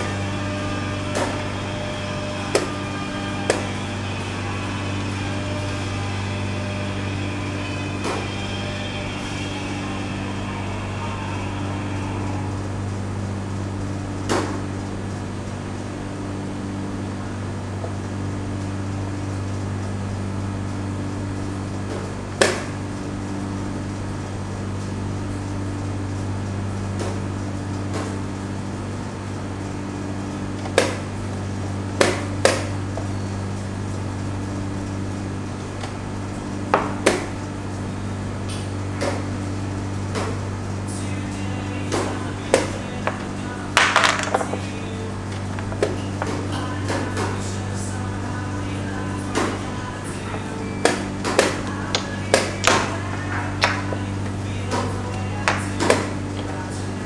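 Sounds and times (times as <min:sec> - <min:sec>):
faint music: 0:00.0 - 0:57.0
low hum of room machinery: 0:00.0 - 0:57.0
wooden chess pieces clicking: 0:42.5 - 0:44.8.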